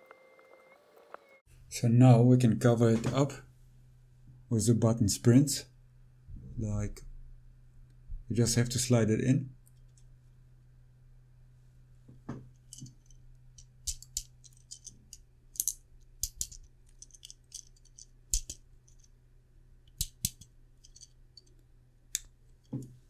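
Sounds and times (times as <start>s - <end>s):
plastic parts clicking and tapping: 12.3s - 19.1s, 19.9s - 23.0s.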